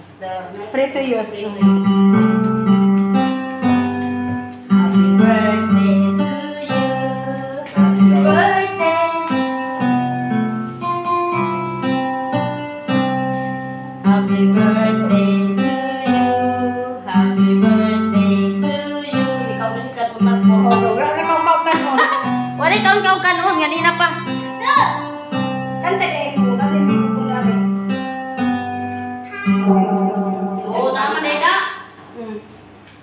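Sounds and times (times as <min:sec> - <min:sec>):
guitar: 0:00.8 - 0:32.1
woman singing: 0:04.9 - 0:09.8, 0:14.1 - 0:24.0.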